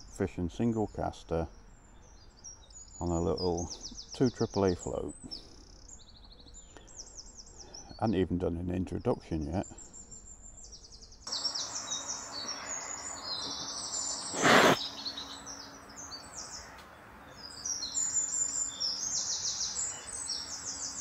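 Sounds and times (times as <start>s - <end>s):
songbirds chirping and trilling: 0.0s - 21.0s
short loud burst of noise: 14.3s - 14.8s.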